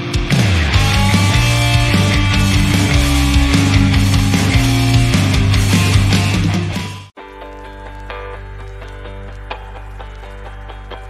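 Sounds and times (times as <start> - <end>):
steady drum beat: 0.0 - 7.1
distorted electric guitar: 0.0 - 11.0
rock music: 0.0 - 11.0.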